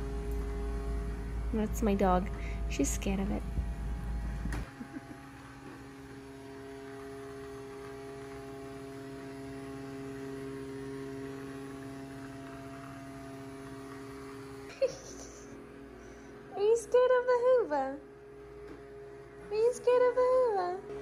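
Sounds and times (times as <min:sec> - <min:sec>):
robot vacuum motor hum: 0:00.0 - 0:16.3.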